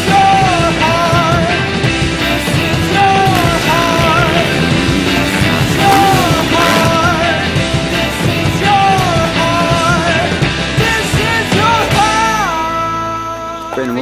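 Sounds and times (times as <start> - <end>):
rock music: 0.0 - 13.6
sliding lead guitar melody: 1.0 - 9.4.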